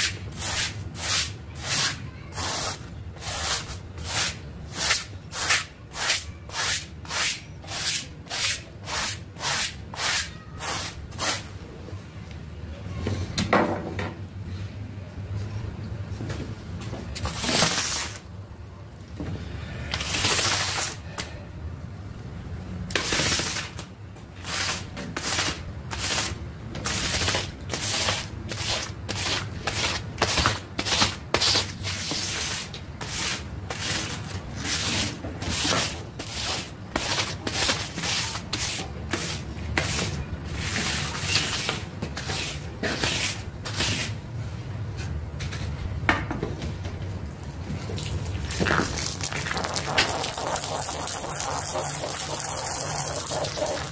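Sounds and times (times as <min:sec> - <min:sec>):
tool scraping wet rug: 0:24.4 - 0:44.1, 0:48.0 - 0:53.9.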